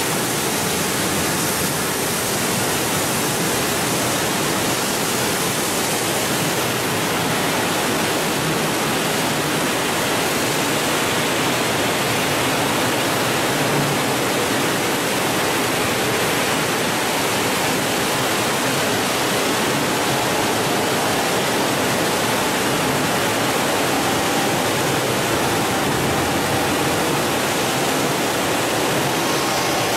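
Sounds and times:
polishing machine running: 0:18.4 - 0:29.9.

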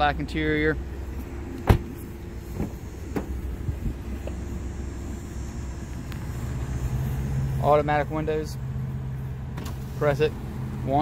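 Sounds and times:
steady low hum: 0:00.0 - 0:11.0
car door slamming: 0:01.5 - 0:03.6.

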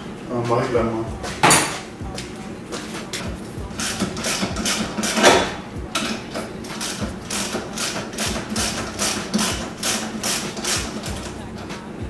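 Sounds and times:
ratchet wrench clicking: 0:03.7 - 0:11.4.

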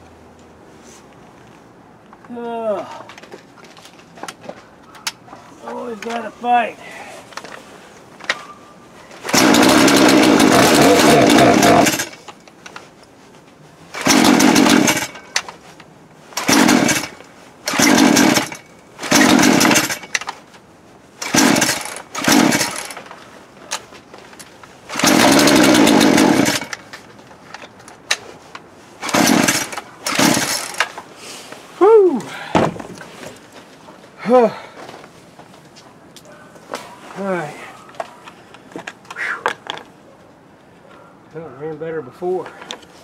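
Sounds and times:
chainsaw engine running and sputtering: 0:09.2 - 0:12.2, 0:13.9 - 0:15.3, 0:16.4 - 0:20.1, 0:21.2 - 0:23.0, 0:24.9 - 0:26.8, 0:29.0 - 0:30.9
chainsaw pull-start: 0:09.2 - 0:12.3, 0:13.9 - 0:15.5, 0:16.3 - 0:20.4, 0:21.2 - 0:23.1, 0:24.9 - 0:27.0, 0:29.0 - 0:31.0.

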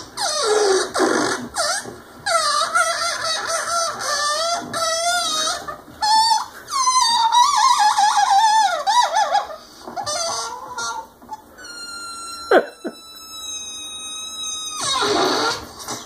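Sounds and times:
air squealing from balloon neck: 0:00.0 - 0:16.0.

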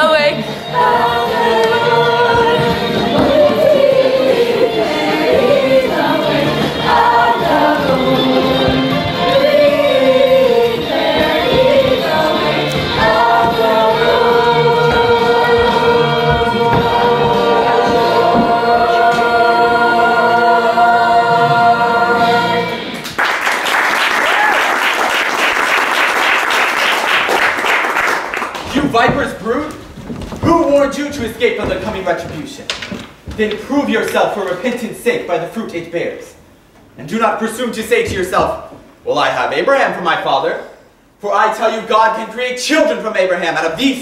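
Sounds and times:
chorus singing: 0:00.0 - 0:23.6
audience applause: 0:23.0 - 0:28.7.

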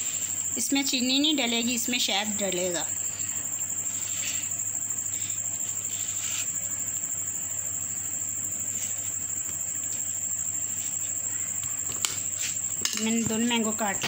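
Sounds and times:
cricket trill: 0:00.0 - 0:14.0
blade scraping through mango: 0:05.7 - 0:06.7.

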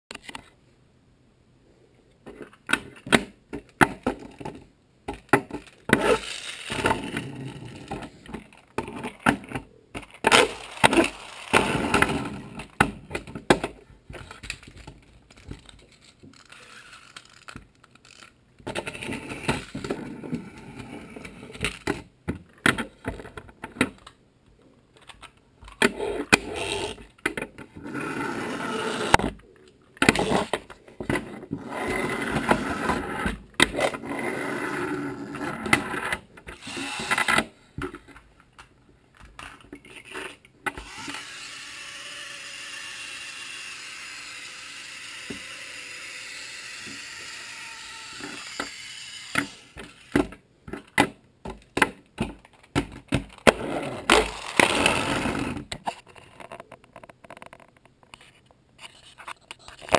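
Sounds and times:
toy trucks clacking on wood: 0:02.2 - 0:24.2, 0:35.5 - 0:59.9
toy wheels rolling on wood: 0:02.3 - 0:22.1, 0:25.0 - 0:38.3, 0:39.2 - 0:51.0, 0:51.6 - 0:59.9.

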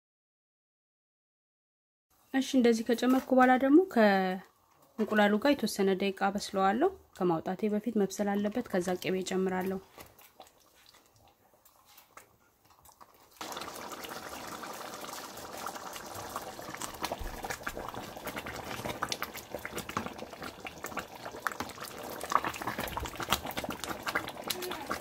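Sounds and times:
stew bubbling in a pot: 0:07.1 - 0:25.0.

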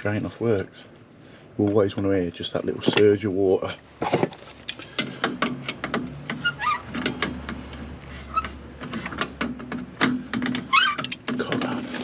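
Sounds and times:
pliers turning metal valve: 0:10.6 - 0:11.3.

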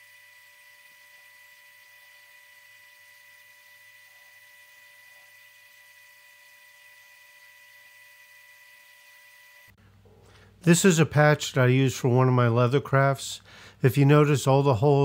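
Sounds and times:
laser engraver electrical hum and whine: 0:00.0 - 0:09.8.

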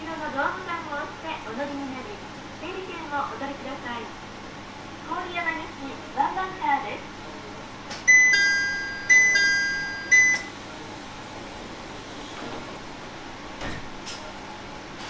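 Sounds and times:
two-tone door chime: 0:08.1 - 0:10.5.

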